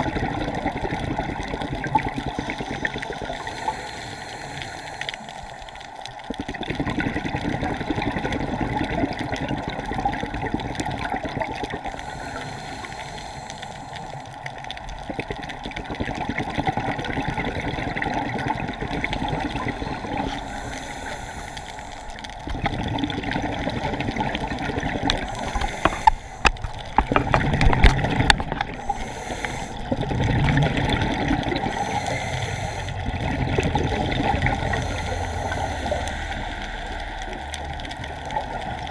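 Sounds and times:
gurgling exhaled bubbles: 0:00.0 - 0:38.9
diver breathing through regulator: 0:02.2 - 0:05.9, 0:11.8 - 0:14.4, 0:19.2 - 0:22.4, 0:25.1 - 0:26.8, 0:28.5 - 0:30.3, 0:31.5 - 0:33.3, 0:34.0 - 0:37.8.

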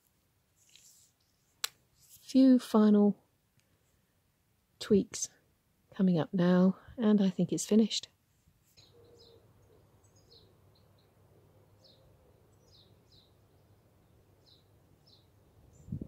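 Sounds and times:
faint birds chirping: 0:08.5 - 0:16.0.

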